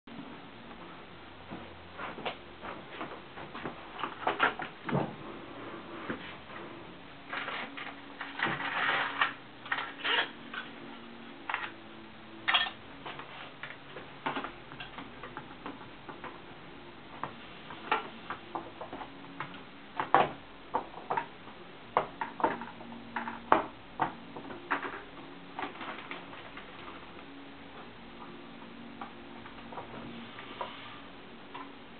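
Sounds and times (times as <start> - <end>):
roller blind clicks and knocks: 7.3 - 10.6.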